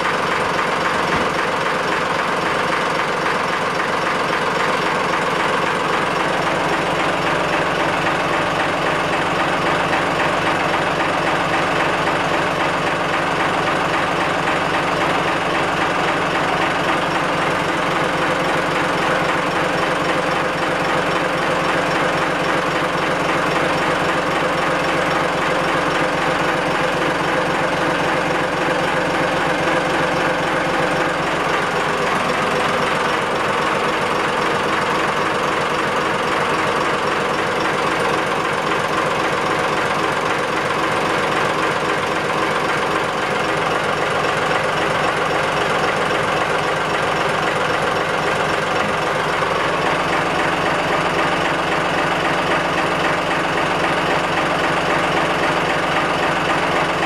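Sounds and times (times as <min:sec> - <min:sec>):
diesel engine clattering: 0:00.0 - 0:57.0.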